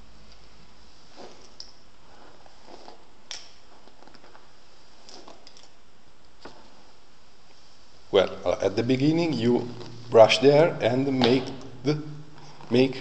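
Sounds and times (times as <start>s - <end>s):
steady background hiss: 0.0s - 13.0s
hairbrush brushing rustles: 0.3s - 5.5s.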